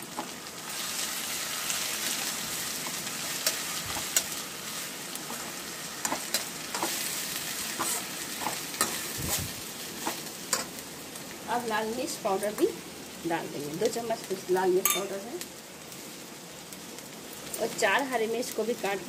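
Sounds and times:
onions sizzling in oil: 0:00.0 - 0:19.0
spatula scraping pan: 0:07.7 - 0:10.7.

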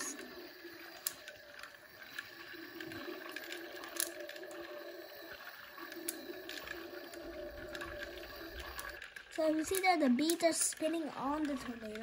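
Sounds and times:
toy sound effect drone: 0:00.0 - 0:12.0.

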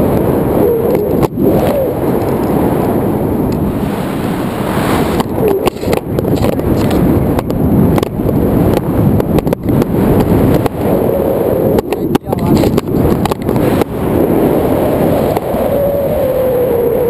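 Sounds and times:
wind buffeting microphone: 0:00.0 - 0:17.0
crackles: 0:04.9 - 0:17.0.

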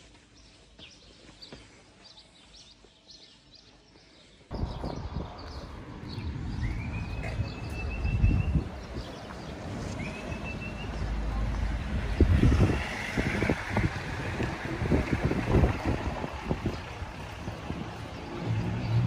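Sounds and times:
small birds chirping: 0:00.0 - 0:12.9
wind buffeting microphone: 0:04.5 - 0:10.1, 0:11.6 - 0:19.0
distant traffic: 0:04.5 - 0:19.0.

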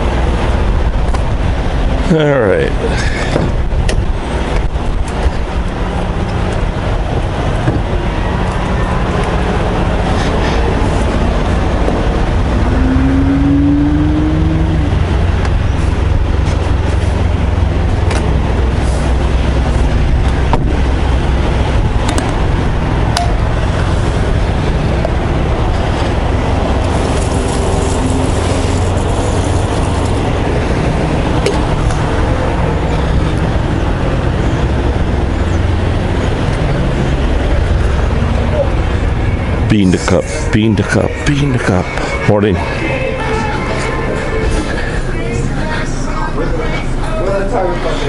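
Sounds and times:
traffic engines rumbling: 0:00.0 - 0:48.0
short rising whine: 0:04.2 - 0:40.5.

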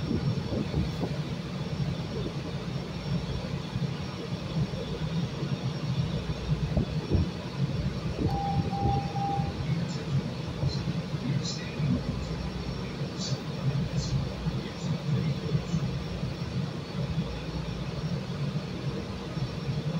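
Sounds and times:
train equipment humming: 0:00.0 - 0:19.9
short beeping tone: 0:08.2 - 0:09.6.

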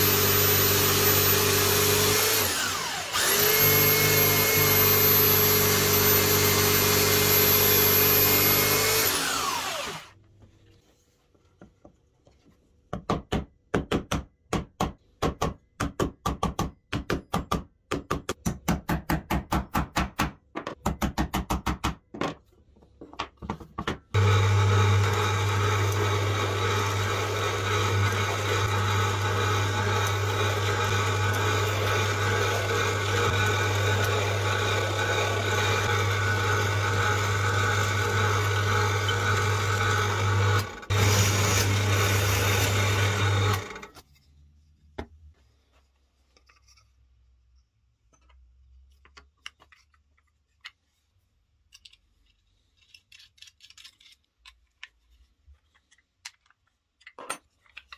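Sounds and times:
drill press humming: 0:00.0 - 0:10.2, 0:24.2 - 0:44.0.

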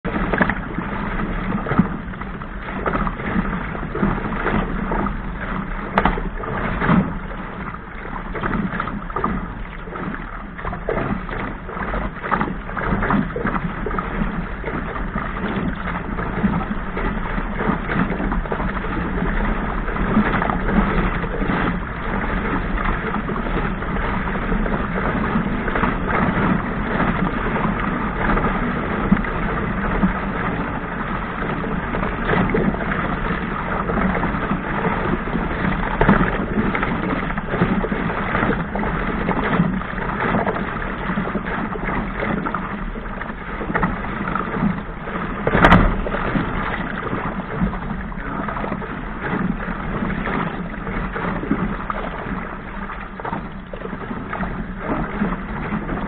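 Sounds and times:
boat hull slapping waves: 0:00.0 - 0:56.0
rushing water and spray: 0:00.0 - 0:56.0
sharp hull bang: 0:41.6 - 0:49.6.

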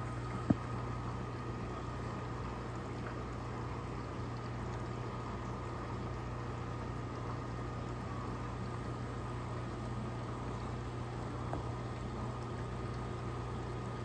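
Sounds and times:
aquarium pump hum: 0:00.0 - 0:14.0.

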